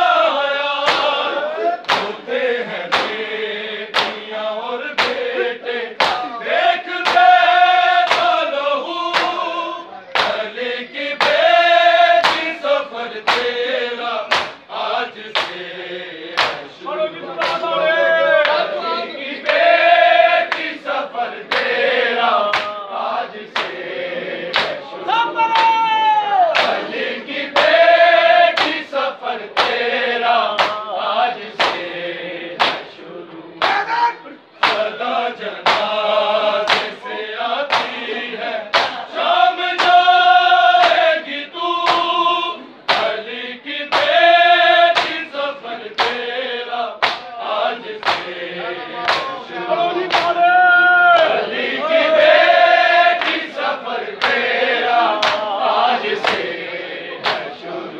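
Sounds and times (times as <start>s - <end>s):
men chanting together: 0.0s - 57.9s
hands slapping bare chests: 0.9s - 1.2s, 1.8s - 2.2s, 2.9s - 3.2s, 3.9s - 4.3s, 5.0s - 5.3s, 6.0s - 6.3s, 7.0s - 7.4s, 8.0s - 8.4s, 9.1s - 9.4s, 10.2s - 10.5s, 11.2s - 11.6s, 12.2s - 12.6s, 13.2s - 13.6s, 14.3s - 14.6s, 15.3s - 15.6s, 16.4s - 16.7s, 17.4s - 17.7s, 20.5s - 20.8s, 21.5s - 21.8s, 22.4s - 22.8s, 23.5s - 23.8s, 24.5s - 24.8s, 26.5s - 26.9s, 28.5s - 28.8s, 29.6s - 29.8s, 30.6s - 30.8s, 31.6s - 31.8s, 32.6s - 32.9s, 34.6s - 34.9s, 35.6s - 36.0s, 36.6s - 37.0s, 37.7s - 38.0s, 38.7s - 39.0s, 39.8s - 40.1s, 40.8s - 41.1s, 41.8s - 42.1s, 42.9s - 43.2s, 43.9s - 44.2s, 44.9s - 45.2s, 45.9s - 46.2s, 47.0s - 47.3s, 48.0s - 48.4s, 49.0s - 49.3s, 50.1s - 50.4s, 53.2s - 53.4s, 54.2s - 54.5s, 55.2s - 55.5s, 56.2s - 56.5s, 57.2s - 57.5s.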